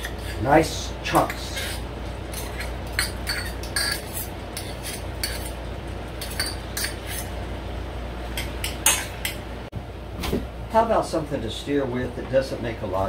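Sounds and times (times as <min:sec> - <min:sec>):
metal utensils scraping a saucepan: 0:00.0 - 0:00.5, 0:01.1 - 0:05.6, 0:06.2 - 0:07.4.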